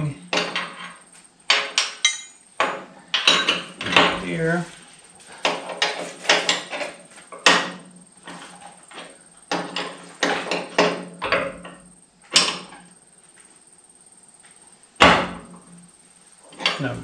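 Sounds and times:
wrench clinking on metal fitting: 0:02.0 - 0:02.4.

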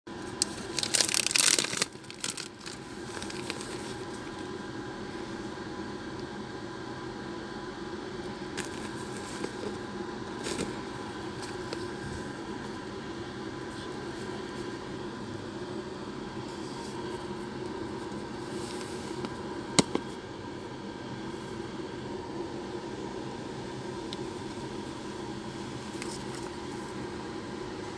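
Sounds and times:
steady low hum: 0:00.1 - 0:27.9
plastic bag crinkling: 0:00.3 - 0:04.4, 0:08.6 - 0:09.8.

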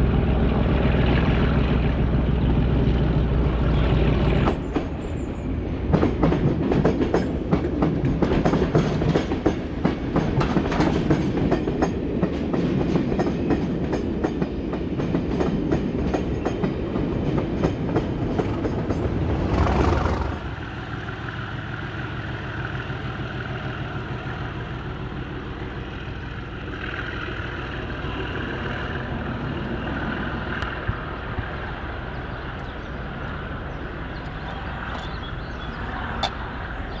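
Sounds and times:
diesel engine drone: 0:00.0 - 0:05.6, 0:18.3 - 0:37.0
locomotive passing close by: 0:00.0 - 0:37.0.

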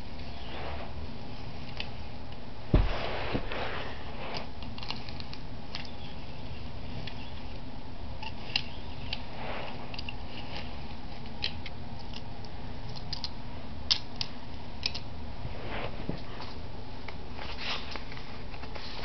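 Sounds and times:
soft rustle: 0:00.0 - 0:02.1, 0:02.7 - 0:05.4, 0:08.4 - 0:11.2, 0:15.4 - 0:19.0
steady low hiss: 0:00.0 - 0:19.0
toy cars clicking and tapping: 0:12.9 - 0:13.3.

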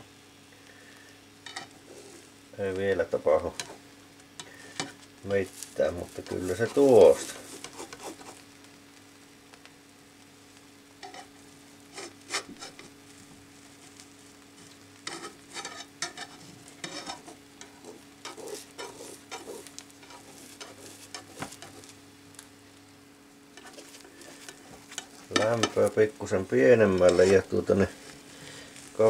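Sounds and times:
egg sizzling: 0:00.0 - 0:29.0
spatula scraping frying pan: 0:01.4 - 0:02.3, 0:06.2 - 0:08.5, 0:11.0 - 0:13.0, 0:14.6 - 0:22.0, 0:23.5 - 0:26.0, 0:26.7 - 0:29.0.

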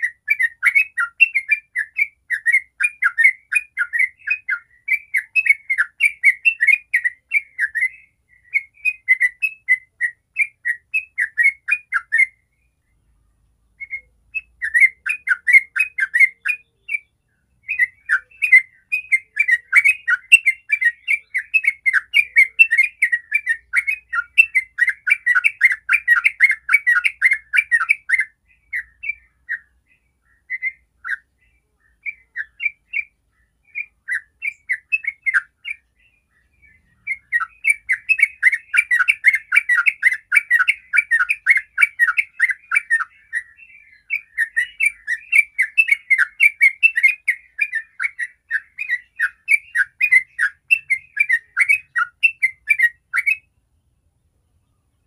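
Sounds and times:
bird singing bubbly notes: 0:13.8 - 0:53.6.

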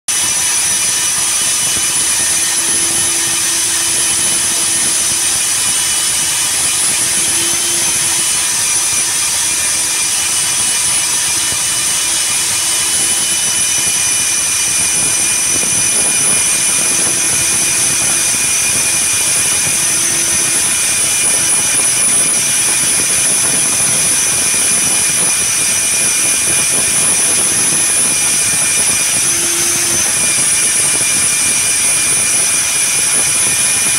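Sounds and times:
core drill motor whine: 0:00.1 - 0:33.9
drilling hiss: 0:00.1 - 0:33.9.

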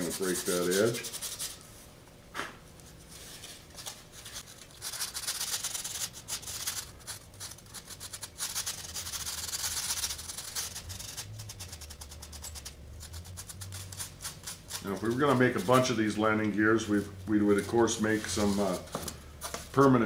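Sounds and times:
sandpaper rasping on foam: 0:00.0 - 0:01.6, 0:04.8 - 0:16.2, 0:17.5 - 0:18.9.

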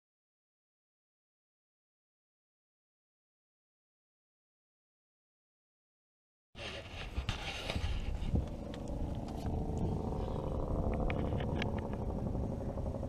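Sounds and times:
boat motor humming: 0:06.6 - 0:13.0
wind noise on microphone: 0:06.6 - 0:13.0.

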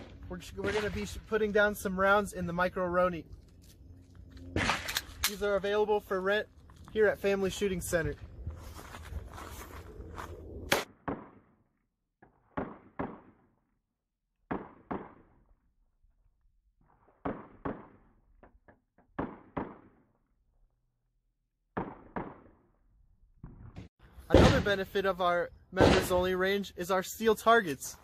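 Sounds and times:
pistol shots in quick pairs: 0:12.4 - 0:13.5, 0:14.5 - 0:15.3, 0:17.2 - 0:18.1, 0:19.2 - 0:20.1, 0:21.7 - 0:22.6, 0:24.3 - 0:24.8, 0:25.8 - 0:26.2.

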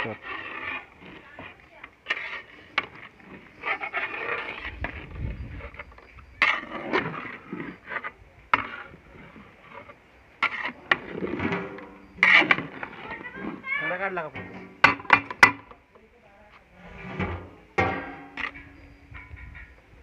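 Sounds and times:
ladle scraping through rice: 0:00.0 - 0:14.9, 0:16.7 - 0:19.0
ladle knocking metal pot: 0:14.3 - 0:15.7, 0:17.2 - 0:19.8.

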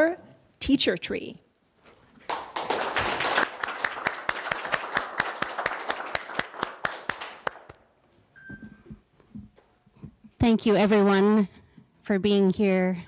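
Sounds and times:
audience clapping: 0:02.2 - 0:07.9.

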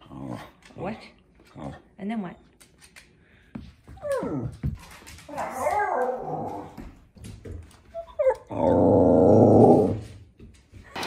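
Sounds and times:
dogs growling: 0:00.0 - 0:01.9, 0:08.2 - 0:10.2.

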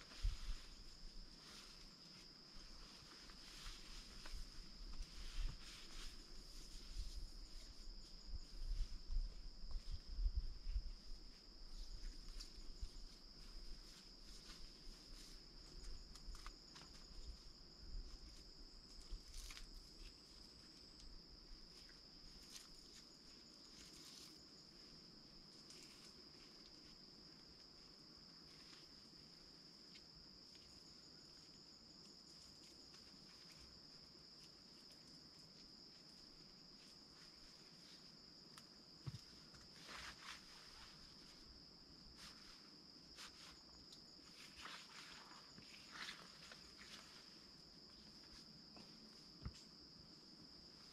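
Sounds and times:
rustling and low bumps: 0:00.0 - 0:16.4.

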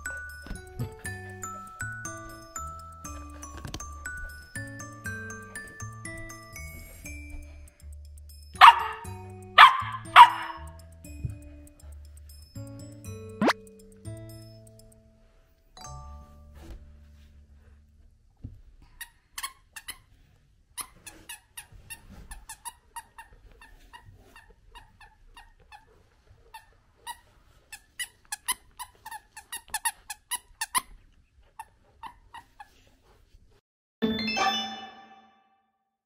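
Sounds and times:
music: 0:00.0 - 0:18.0, 0:34.0 - 0:35.6
dog toy squeaking: 0:08.6 - 0:10.7, 0:20.8 - 0:25.9.

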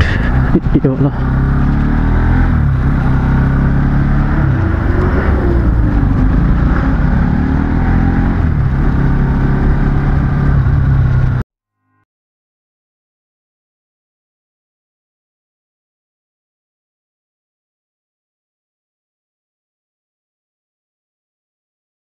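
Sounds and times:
motorbike engine revving: 0:00.0 - 0:11.4.

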